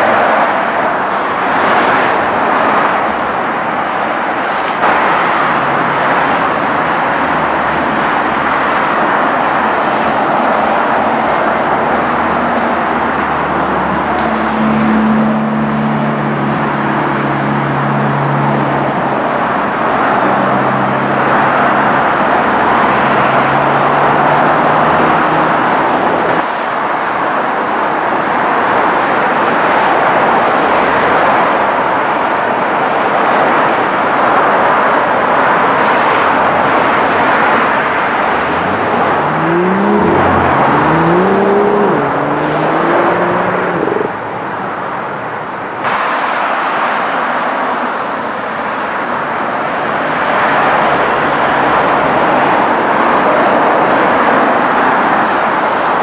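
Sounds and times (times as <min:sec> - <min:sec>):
tyre and traffic noise: 0:00.0 - 0:56.0
engine revving up: 0:37.0 - 0:44.2
sports car engine running: 0:38.1 - 0:44.2.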